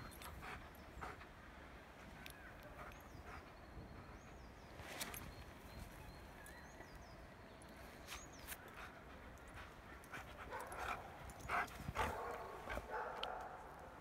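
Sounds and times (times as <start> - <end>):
faint bird chirps: 2.2 - 11.5.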